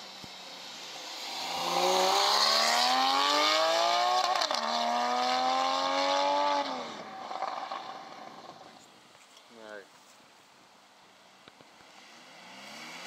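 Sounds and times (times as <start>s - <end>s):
car engine accelerating hard: 0.9s - 8.6s, 11.8s - 13.0s.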